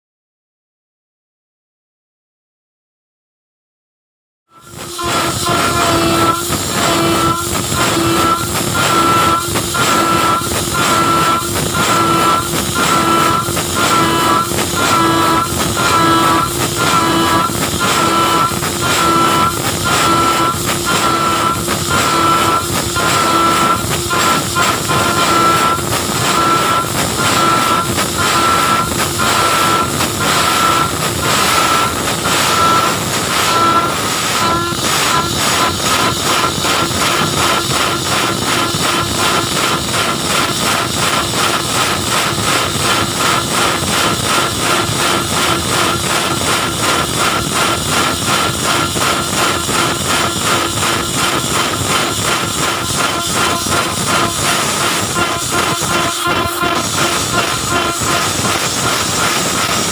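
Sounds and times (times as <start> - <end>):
machine spindle cutting metal: 4.5 - 59.9.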